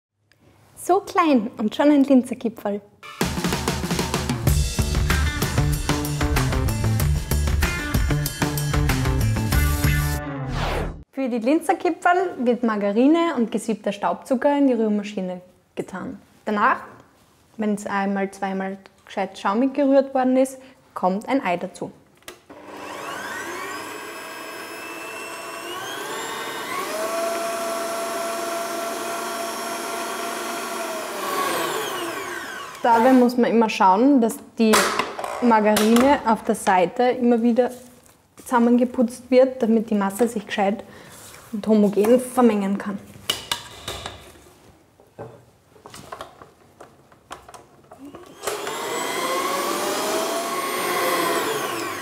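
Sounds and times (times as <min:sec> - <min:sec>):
stand mixer motor whine: 0:22.5 - 0:32.9, 0:48.2 - 0:52.0.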